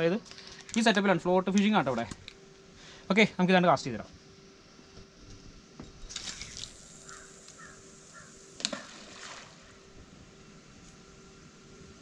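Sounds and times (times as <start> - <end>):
fishing rod cast rattle: 6.0 - 7.7
short bird calls: 7.0 - 9.0.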